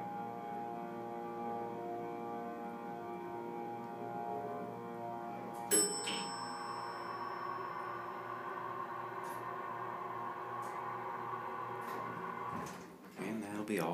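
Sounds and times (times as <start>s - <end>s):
elevator motor humming: 0.0s - 13.0s
faint high ringing: 5.0s - 12.8s.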